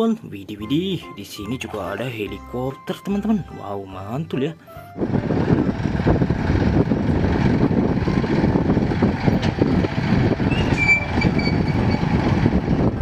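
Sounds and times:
helicopter rotor and turbine rumble: 0:05.0 - 0:13.0.

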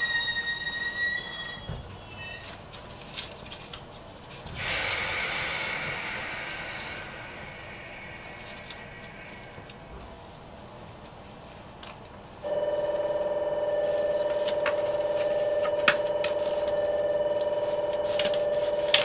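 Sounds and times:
electric bell ringing: 0:12.5 - 0:19.0.

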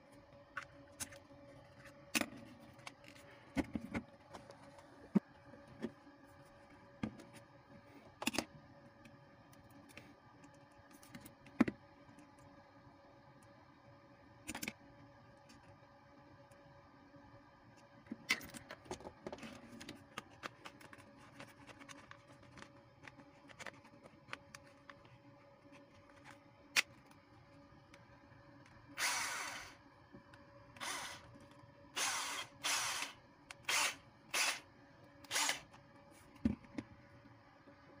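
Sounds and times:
cordless drill motor whirring: 0:29.0 - 0:29.8, 0:30.8 - 0:31.3, 0:32.0 - 0:35.8.

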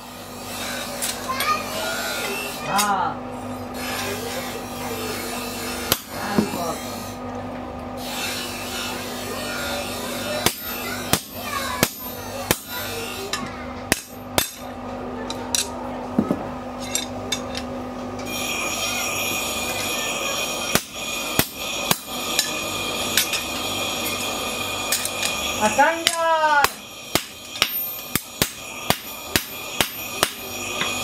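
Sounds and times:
steady hum: 0:00.0 - 0:31.0
hammer striking steel punch: 0:05.9 - 0:06.6, 0:10.4 - 0:12.8, 0:13.9 - 0:14.7, 0:20.7 - 0:22.6, 0:26.0 - 0:31.0.

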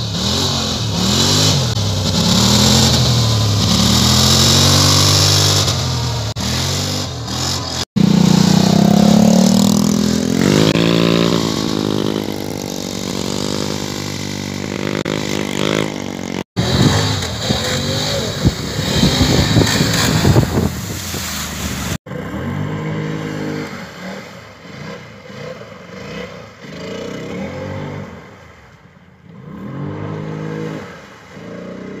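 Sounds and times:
quad bike engine revving: 0:00.0 - 0:28.3, 0:29.2 - 0:32.0
water spraying and splashing: 0:00.2 - 0:22.0.

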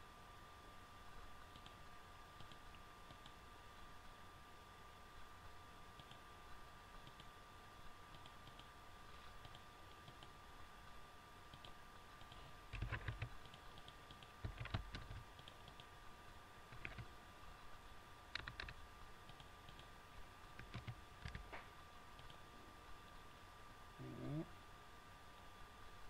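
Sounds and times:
faint steady hum: 0:00.0 - 0:26.0
mouse clicks: 0:01.5 - 0:01.8, 0:08.1 - 0:08.7, 0:09.4 - 0:10.4, 0:11.5 - 0:15.9, 0:16.7 - 0:17.1, 0:18.3 - 0:19.9, 0:22.2 - 0:22.4
keyboard typing: 0:09.4 - 0:10.4, 0:11.5 - 0:15.9, 0:16.7 - 0:17.1, 0:18.3 - 0:19.9, 0:20.5 - 0:21.5.

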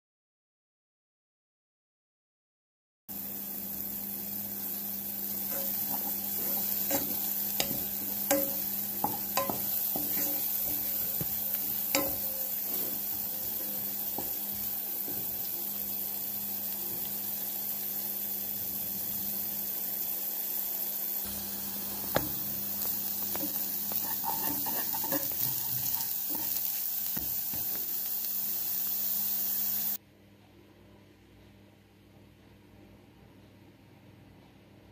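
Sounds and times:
vegetables sizzling in oil: 0:03.1 - 0:30.0
wooden spatula tapping pan: 0:05.5 - 0:15.4.

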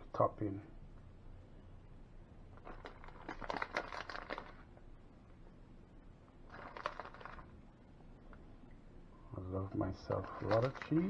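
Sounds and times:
plastic bag crinkling: 0:02.5 - 0:04.7, 0:06.4 - 0:07.6, 0:10.0 - 0:11.0.

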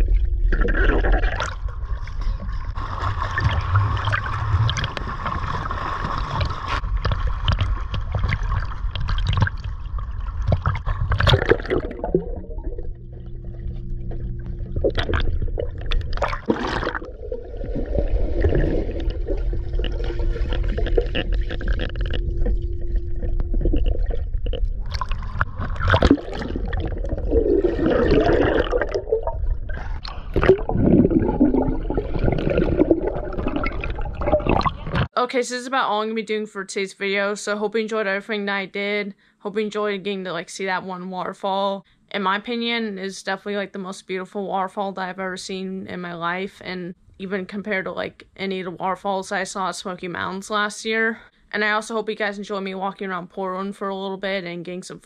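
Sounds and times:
low underwater hum: 0:00.0 - 0:35.1
pool water splashing: 0:00.0 - 0:35.1
underwater gurgling and bubbling: 0:00.0 - 0:35.1.

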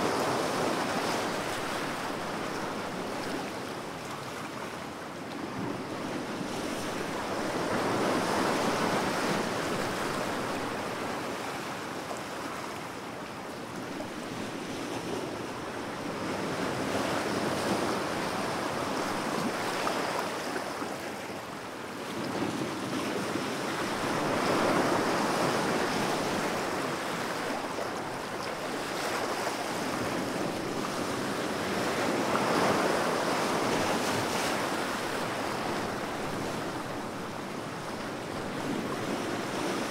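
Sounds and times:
ocean waves breaking: 0:23.2 - 0:39.9.

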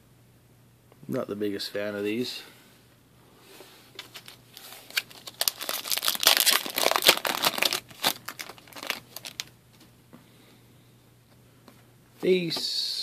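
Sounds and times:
plastic wrapper crinkling and tearing: 0:04.1 - 0:09.5.

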